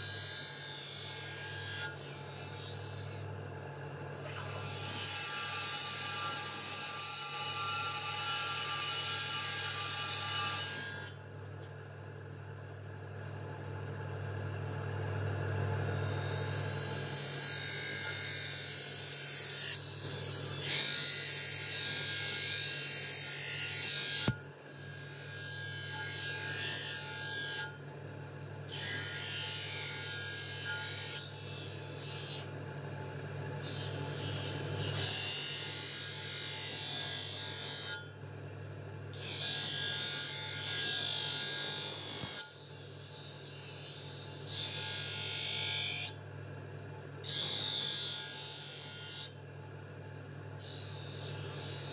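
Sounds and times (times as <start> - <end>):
blade grinding rasp: 0.0 - 3.3, 4.2 - 11.2, 15.8 - 27.8, 28.7 - 32.6, 33.6 - 38.1, 39.1 - 46.2, 47.2 - 49.4, 50.6 - 51.9.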